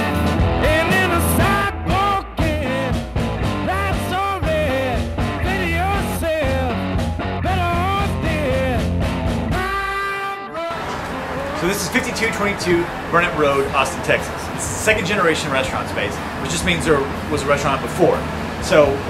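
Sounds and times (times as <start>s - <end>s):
rock music with sliding melody: 0.0s - 16.5s.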